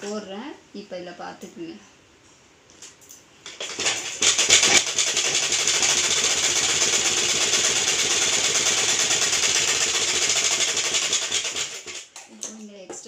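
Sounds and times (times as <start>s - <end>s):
sewing machine stitching: 3.5s - 12.1s.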